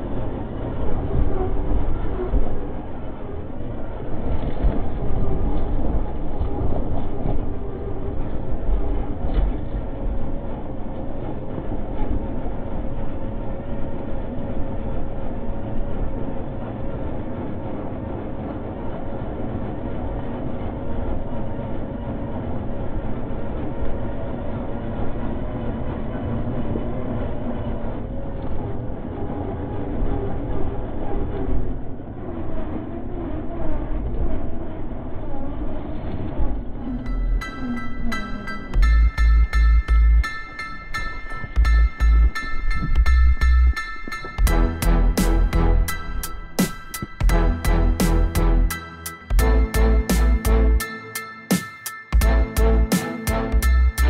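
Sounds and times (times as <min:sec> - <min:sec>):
rattles squeaks and bumps: 0:00.0 - 0:12.6, 0:27.2 - 0:54.0
electric motor and gearbox whining: 0:41.6 - 0:54.0.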